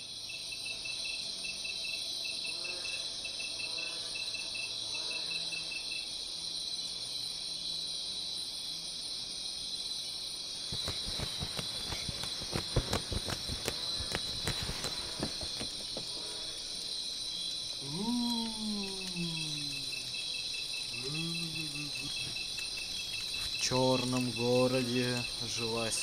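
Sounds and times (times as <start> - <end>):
crickets chirping: 0.0 - 26.0
quick thumps: 10.7 - 16.2
pulsing chirp: 10.7 - 16.6.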